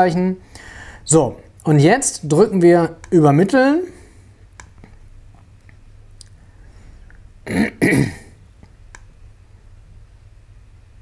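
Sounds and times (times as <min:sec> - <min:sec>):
person clearing throat: 0:07.4 - 0:08.4.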